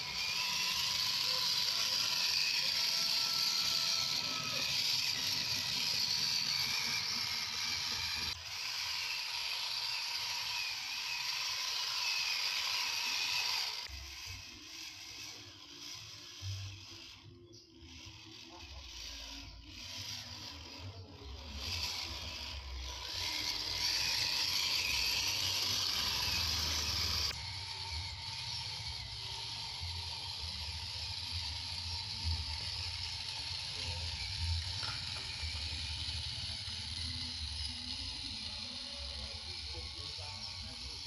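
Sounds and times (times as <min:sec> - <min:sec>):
electric motor whirring: 0:00.0 - 0:41.0.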